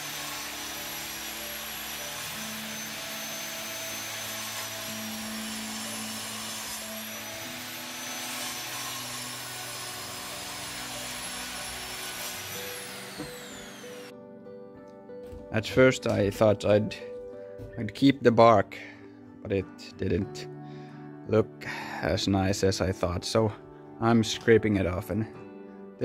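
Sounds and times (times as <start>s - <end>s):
mitre saw cutting wood: 0.0s - 14.1s.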